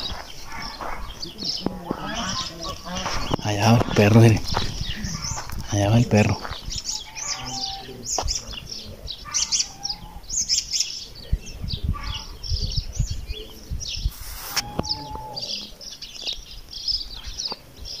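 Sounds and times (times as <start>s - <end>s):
small birds chirping: 0.0s - 18.0s
brief rush of noise: 14.1s - 14.9s.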